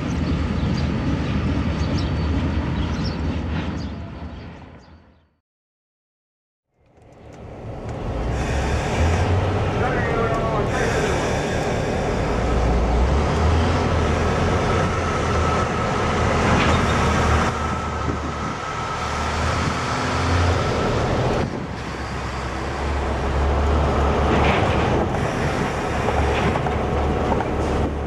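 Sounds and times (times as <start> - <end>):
diesel locomotive engine rumble: 0.0 - 4.8, 6.8 - 28.0
train wheels on rails: 6.9 - 28.0.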